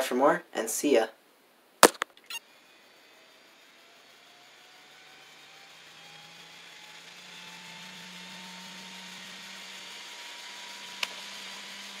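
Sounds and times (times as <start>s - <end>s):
sharp click: 1.8s - 2.4s
electric motor whine: 2.4s - 12.0s.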